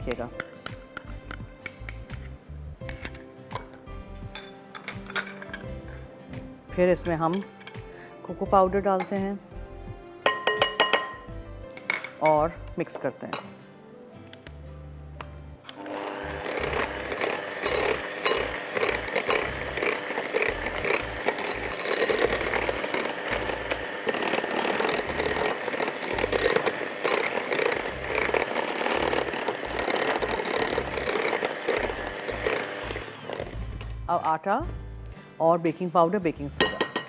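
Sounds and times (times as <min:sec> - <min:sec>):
electric hand mixer running: 0:15.7 - 0:33.7.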